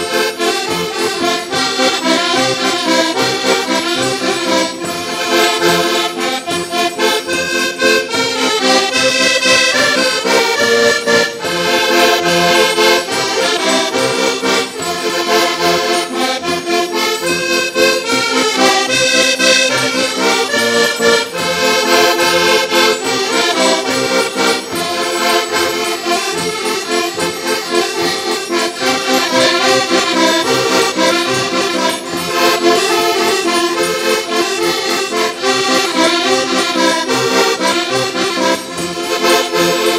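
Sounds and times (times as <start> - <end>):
button accordions playing folk tune: 0.0 - 39.9.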